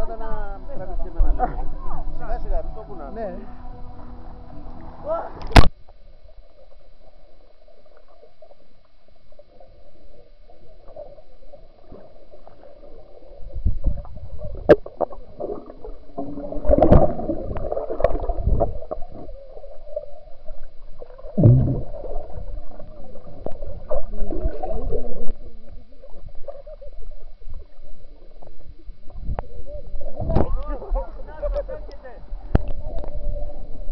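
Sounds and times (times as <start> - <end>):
underwater gurgling and bubbling: 3.9 - 33.9
swimmers thumping and bubbles: 13.6 - 20.0, 20.6 - 27.4.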